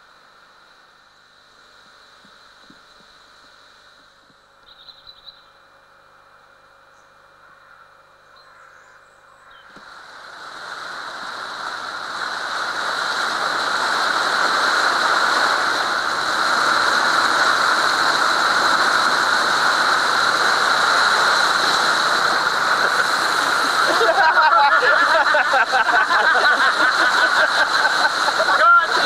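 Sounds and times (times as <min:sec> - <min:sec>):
wind: 0:00.0 - 0:29.0
water rushing around a boat: 0:09.8 - 0:29.0.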